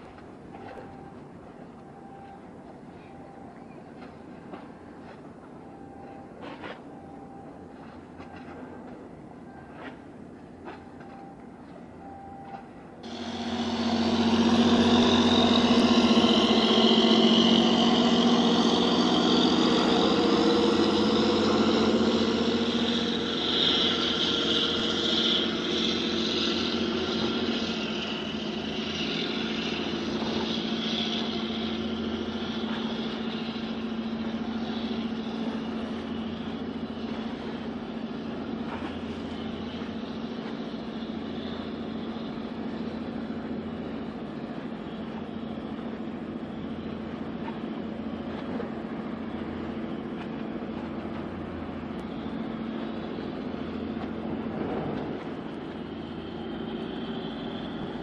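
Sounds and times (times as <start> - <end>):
truck engine droning: 13.0 - 58.0.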